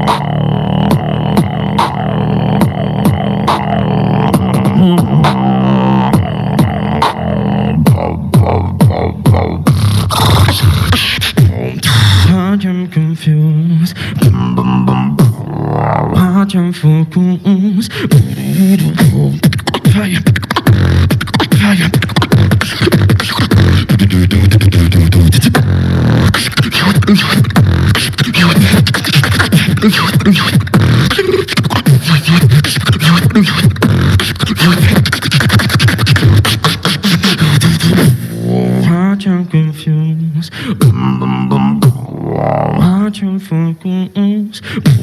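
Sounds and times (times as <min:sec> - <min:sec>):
low humming bass line: 0:00.0 - 0:19.4
beatboxing into microphone: 0:00.0 - 0:45.0.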